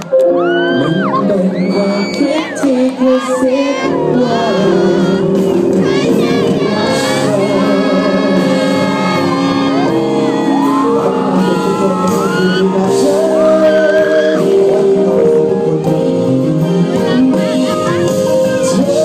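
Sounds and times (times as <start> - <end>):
audience shouting: 0.0 - 14.5
live band music through pa: 0.0 - 19.0
man singing: 0.4 - 19.0.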